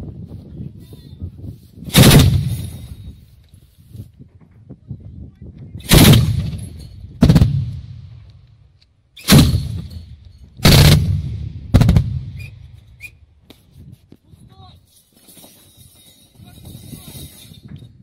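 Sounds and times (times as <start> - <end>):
autocannon firing bursts: 1.9 - 2.7, 5.9 - 7.8, 9.3 - 10.0, 10.6 - 12.4.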